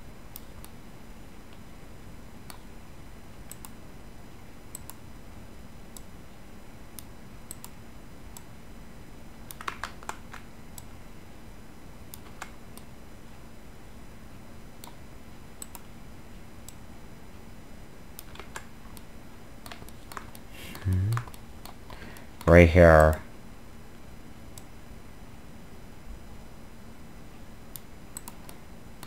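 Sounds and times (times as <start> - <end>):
faint steady hum: 0.0 - 29.0
mouse and keyboard clicks: 27.8 - 28.6.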